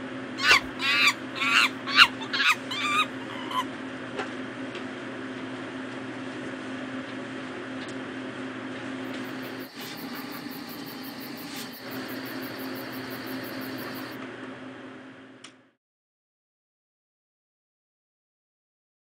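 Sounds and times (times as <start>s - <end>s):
steady low hum: 0.0s - 4.0s, 8.7s - 15.4s
high bird-like calls: 0.4s - 3.7s.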